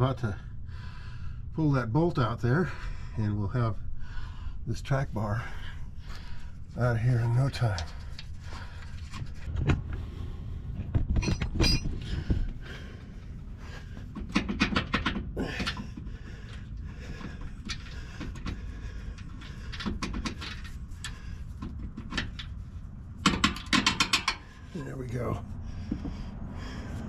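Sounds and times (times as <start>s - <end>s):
metal clinks and knocks: 10.8s - 12.6s, 23.2s - 24.6s.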